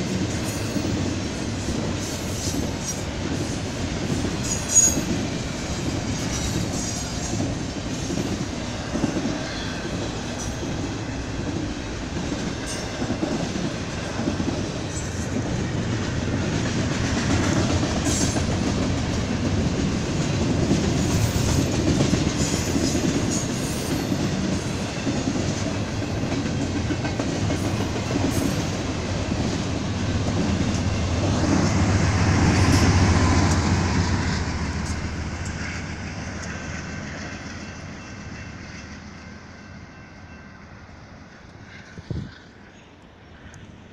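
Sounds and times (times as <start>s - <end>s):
diesel locomotive hum: 0.0s - 43.9s
train wheels rumbling on rails: 0.0s - 43.9s.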